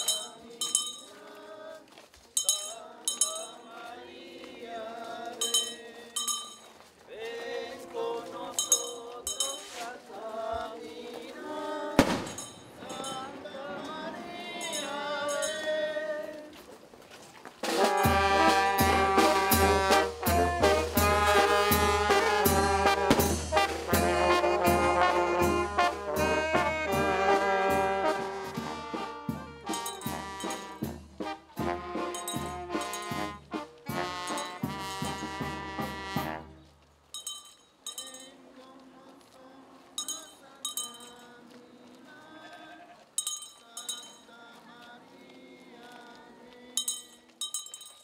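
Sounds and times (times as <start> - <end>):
brass band playing lively tune: 0.0 - 0.4, 17.6 - 36.6
sharp percussion hits: 12.0 - 13.7, 14.4 - 15.8, 17.6 - 24.8, 29.3 - 35.5.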